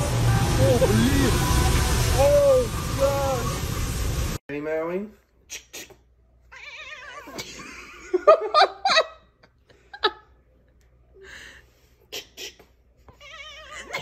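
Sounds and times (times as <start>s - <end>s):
cat yowling: 6.5s - 7.4s, 13.2s - 14.0s
man laughing: 7.3s - 10.3s.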